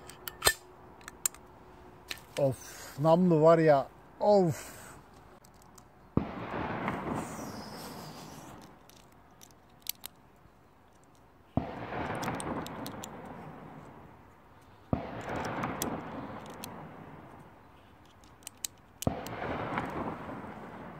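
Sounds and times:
gunshots with rolling echo: 6.2s - 8.7s, 11.6s - 14.2s, 14.9s - 17.6s, 19.0s - 20.9s.

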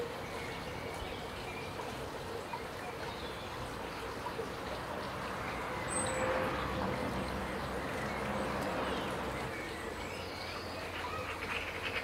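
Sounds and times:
outdoor background hiss: 0.0s - 12.0s
faint bird calls: 10.3s - 12.0s.

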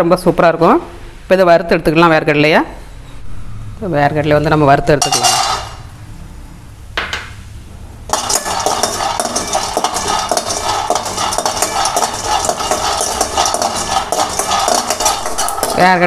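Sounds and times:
nuts rattling in pan: 5.0s - 5.9s, 8.1s - 16.0s
spoon scraping metal pan: 5.0s - 5.9s, 8.1s - 16.0s.

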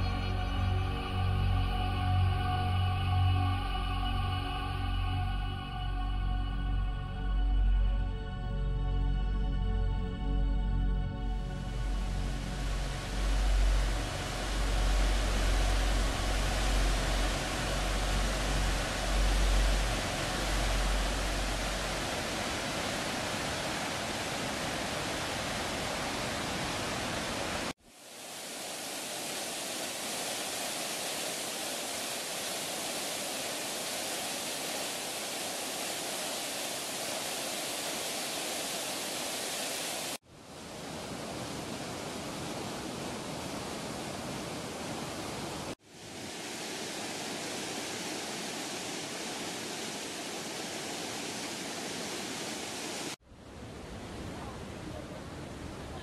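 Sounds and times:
whitewater rushing: 12.0s - 56.0s.

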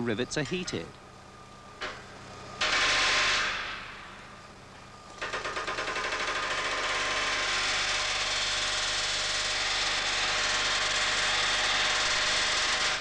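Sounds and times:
pneumatic riveting hammer: 2.6s - 4.1s, 5.2s - 13.0s.

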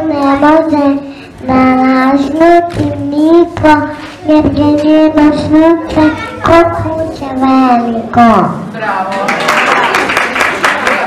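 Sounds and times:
boy singing into a microphone: 0.0s - 8.4s.

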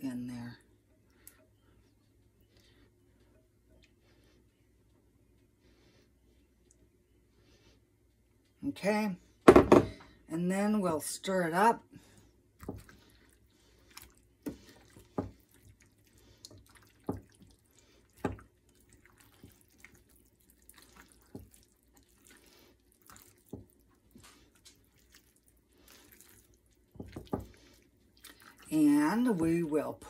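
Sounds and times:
spatula squelching thick mixture: 12.0s - 30.0s.

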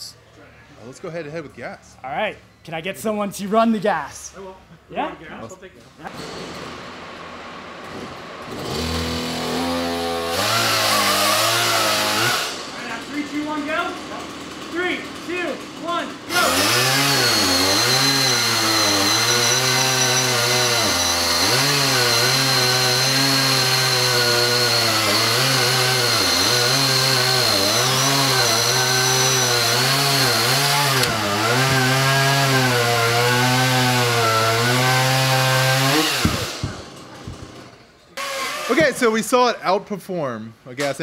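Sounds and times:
cordless chainsaw cutting log: 7.8s - 39.1s
gas chainsaw cutting log: 7.8s - 39.2s.

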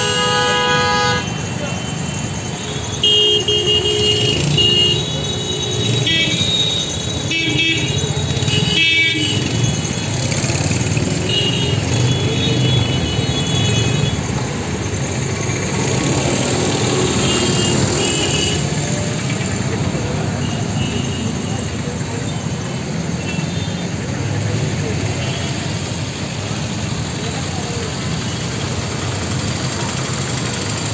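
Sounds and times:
vehicle horns honking: 0.0s - 10.2s, 11.2s - 14.3s, 16.8s - 18.9s, 20.3s - 21.8s
traffic engines running: 0.0s - 30.9s.

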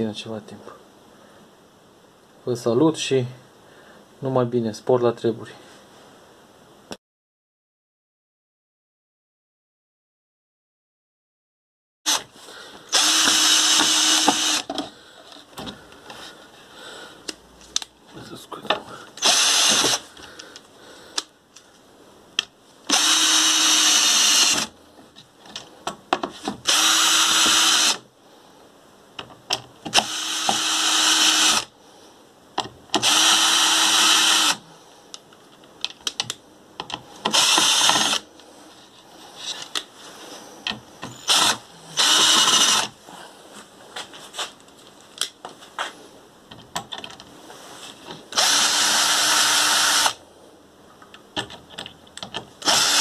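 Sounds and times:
cordless drill whining: 12.1s - 14.8s, 19.2s - 20.1s, 22.9s - 24.7s, 26.6s - 28.0s, 29.9s - 31.7s, 33.0s - 34.6s, 37.3s - 38.3s, 41.0s - 42.9s, 48.3s - 50.2s, 52.6s - 53.0s.

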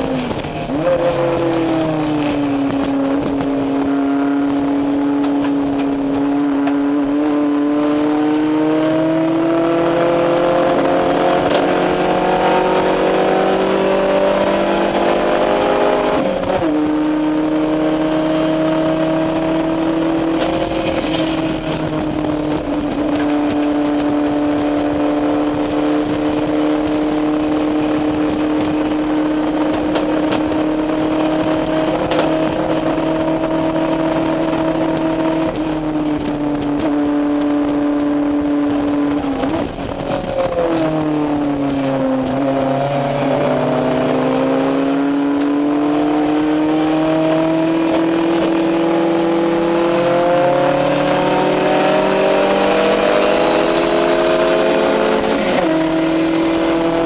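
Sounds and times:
race car engine at high revs: 0.0s - 57.0s
road and wind noise: 0.0s - 57.0s.

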